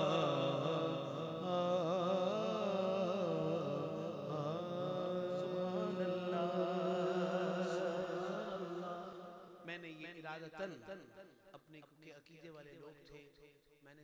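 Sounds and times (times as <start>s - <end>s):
drone of backing voices: 0.0s - 9.6s
man singing ornamented vowel: 0.0s - 9.7s.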